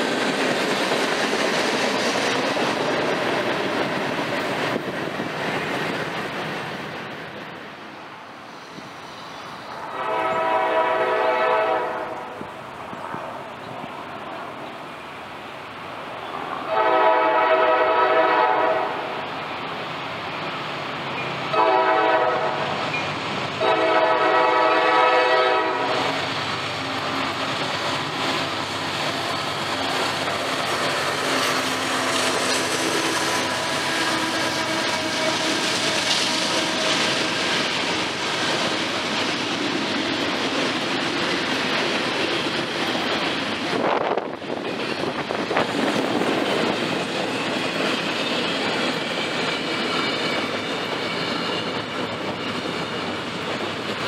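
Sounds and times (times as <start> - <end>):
diesel locomotives rumbling: 0.0 - 54.0
rail cars clattering: 0.0 - 54.0
train air horn blasts: 9.8 - 12.4, 16.6 - 19.3, 21.5 - 22.8, 23.6 - 26.2, 31.9 - 37.4.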